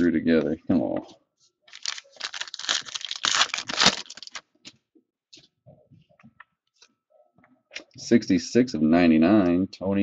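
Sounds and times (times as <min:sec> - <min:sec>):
foil wrapper crinkling and tearing: 0:01.7 - 0:04.4.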